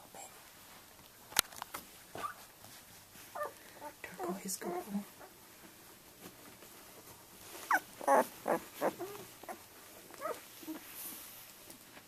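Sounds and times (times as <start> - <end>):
puppy whimpering and squeaking: 2.2 - 2.5, 3.3 - 4.0, 7.6 - 10.9.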